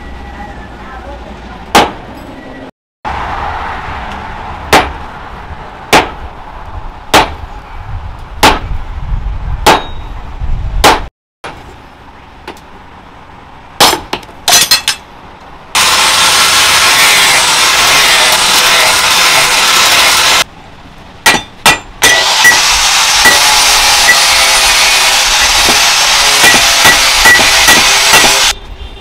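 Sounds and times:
sledgehammer striking hot steel: 0:04.7 - 0:05.0, 0:05.9 - 0:06.2, 0:07.1 - 0:07.4, 0:08.4 - 0:08.7, 0:09.6 - 0:10.0, 0:10.8 - 0:11.6, 0:21.2 - 0:28.6
loud steady rasping noise: 0:15.7 - 0:20.5, 0:21.6 - 0:28.6.

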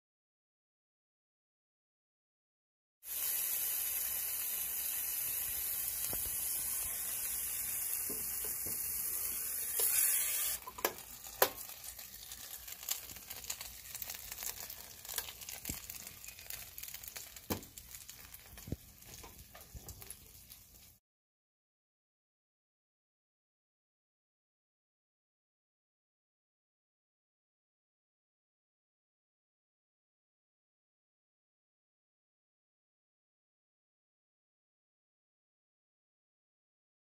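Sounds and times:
food sizzling on a grill: 0:03.0 - 0:21.0
crackling with pops: 0:06.0 - 0:06.4, 0:10.6 - 0:20.6.

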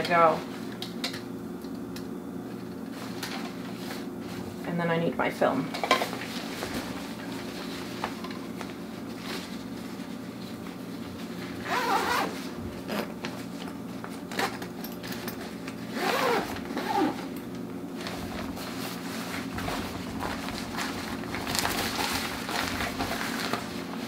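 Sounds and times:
zipper pulled shut: 0:11.6 - 0:13.1, 0:15.9 - 0:17.2.

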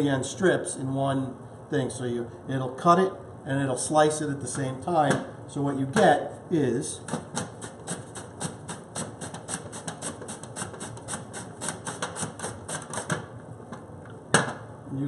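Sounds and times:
potato slicing on mandoline: 0:07.1 - 0:13.2.

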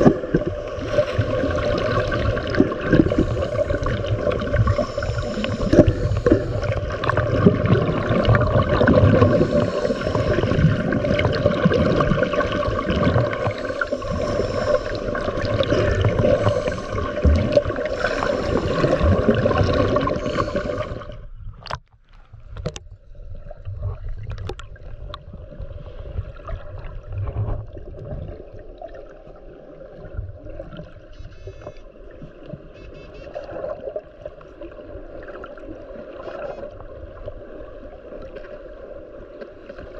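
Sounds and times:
underwater water rushing and bubbling: 0:00.0 - 0:39.9
faint hum: 0:00.6 - 0:21.6.

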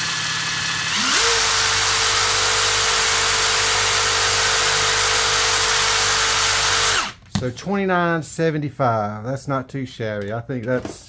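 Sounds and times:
impact driver motor whining: 0:00.0 - 0:07.3.

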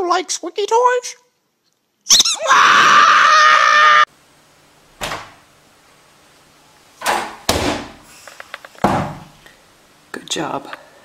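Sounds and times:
squeaky dog toy squealing: 0:02.1 - 0:02.5.

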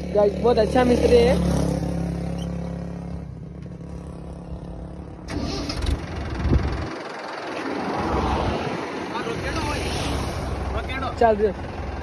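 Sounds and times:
vehicle engine starting: 0:04.8 - 0:08.6.

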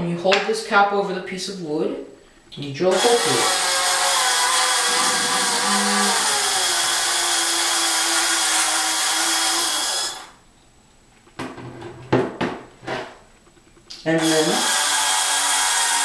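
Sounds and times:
electric drill boring: 0:02.9 - 0:10.4, 0:14.2 - 0:16.0.

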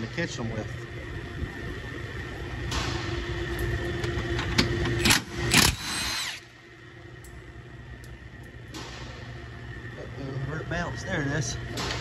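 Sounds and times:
cordless power tool whining: 0:05.0 - 0:06.5.

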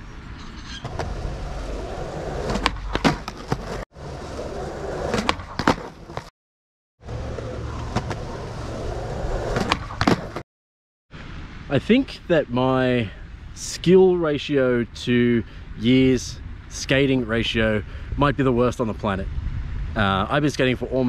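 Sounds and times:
skateboard wheels rolling: 0:00.8 - 0:06.3, 0:07.0 - 0:10.4
skateboard landing clack: 0:02.4 - 0:03.8, 0:05.1 - 0:06.3, 0:09.5 - 0:10.4
skateboard tail popping: 0:02.4 - 0:03.8, 0:05.0 - 0:06.3, 0:09.5 - 0:10.4.

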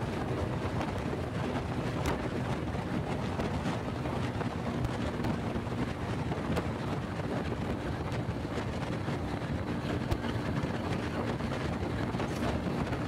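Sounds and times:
motorcycle engine running: 0:00.0 - 0:13.0
wind noise on microphone: 0:00.0 - 0:13.0.

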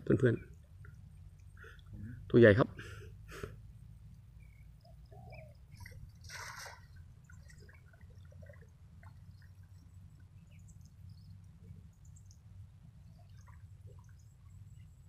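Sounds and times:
low steady rumble: 0:00.0 - 0:15.0
water splashing and dripping: 0:05.7 - 0:12.5, 0:13.1 - 0:14.6.

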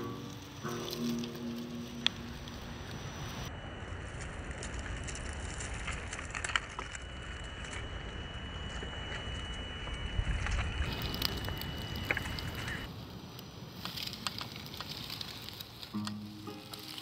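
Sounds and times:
tyres crunching over rocks: 0:00.0 - 0:03.1, 0:13.7 - 0:17.0
electric motor whine: 0:00.0 - 0:12.9.

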